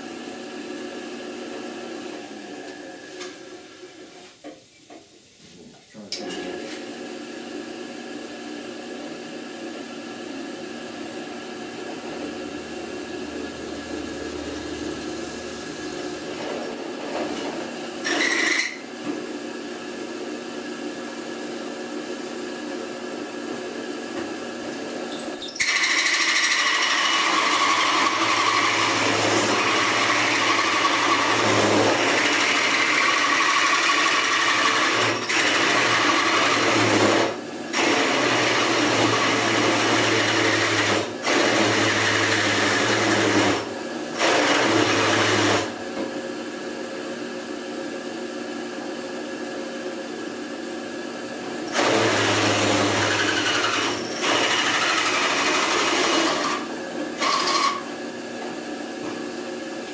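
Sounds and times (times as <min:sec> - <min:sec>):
drill press running: 0:10.0 - 0:19.1, 0:24.6 - 0:46.0, 0:51.2 - 0:58.2
hole saw cutting metal: 0:18.0 - 0:18.8, 0:25.1 - 0:43.6, 0:51.4 - 0:57.9.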